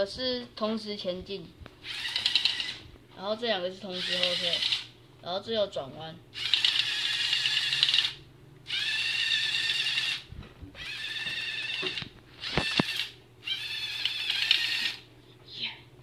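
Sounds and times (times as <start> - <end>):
electric motors and gears whining: 1.8 - 2.9, 3.8 - 5.0, 6.3 - 15.1.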